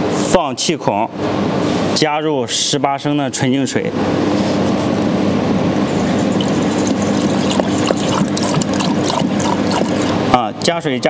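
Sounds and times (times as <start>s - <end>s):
water pouring through funnel: 6.1s - 10.3s.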